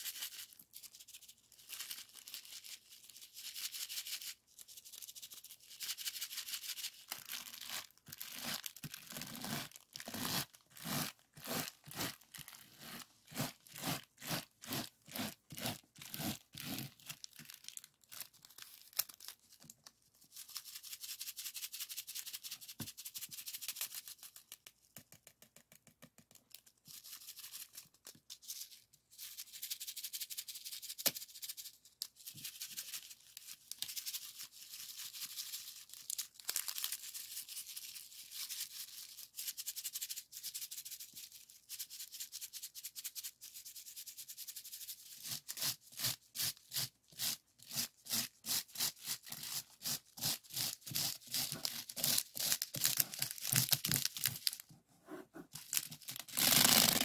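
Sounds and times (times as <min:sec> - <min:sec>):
plastic scraping over resin: 0:09.2 - 0:17.1.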